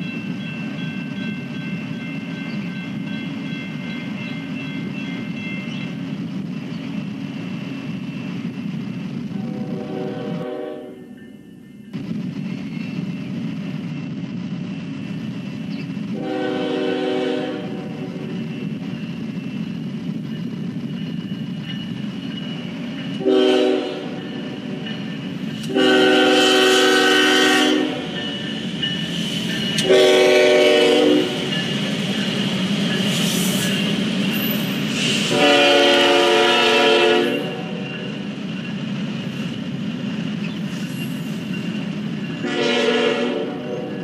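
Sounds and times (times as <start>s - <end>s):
locomotive air horn blasts: 9.4s - 11.1s, 16.2s - 18.2s, 23.2s - 24.6s, 25.7s - 28.2s, 29.8s - 31.4s, 35.2s - 37.8s, 42.4s - 44.0s
steady rumble: 11.9s - 23.3s.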